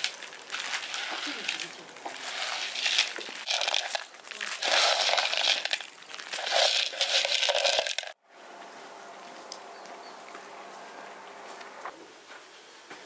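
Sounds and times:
corn kernels rattling in plastic bowl: 0.0s - 8.2s.

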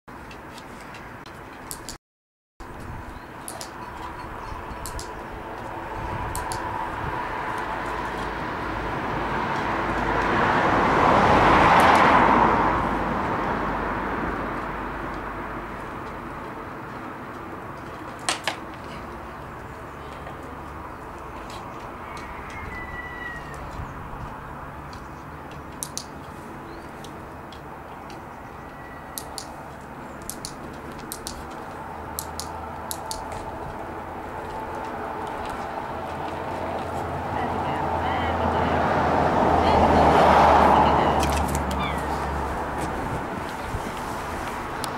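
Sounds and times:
vehicle passing by: 3.9s - 17.3s, 18.8s - 44.9s
sharp quick clicks: 4.8s - 5.2s, 25.8s - 26.1s, 30.2s - 31.4s
skateboard wheels rolling on tarmac: 5.2s - 28.8s, 29.6s - 44.9s.

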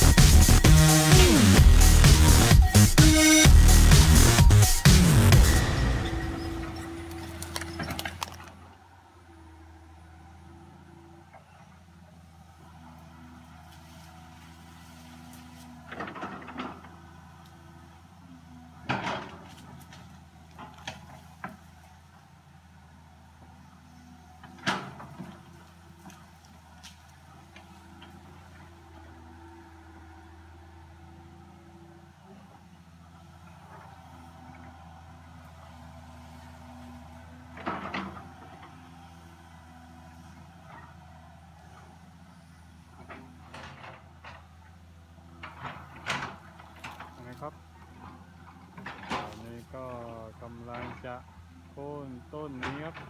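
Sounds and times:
excavator diesel engine running: 0.0s - 53.0s
wood cracking and knocking: 7.4s - 8.6s.

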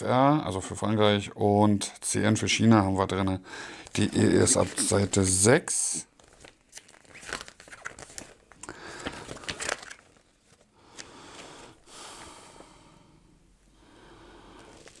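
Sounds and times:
paper pages rustling: 3.8s - 5.5s, 6.1s - 11.8s, 14.6s - 15.0s
page snaps: 6.2s - 11.5s.

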